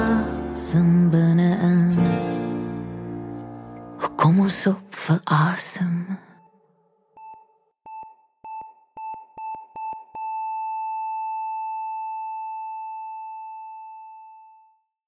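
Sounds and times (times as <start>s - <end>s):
heart monitor flatline tone: 6.4s - 14.8s
heart monitor beeping: 7.1s - 14.7s.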